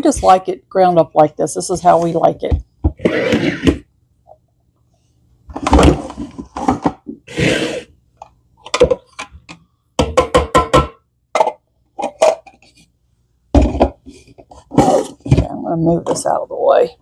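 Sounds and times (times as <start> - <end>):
plastic bowl knocking: 10.0 - 11.6.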